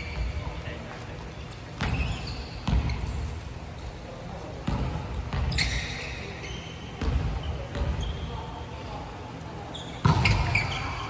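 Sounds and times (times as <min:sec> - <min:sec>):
volleyball thuds in gym: 0:10.0 - 0:10.9.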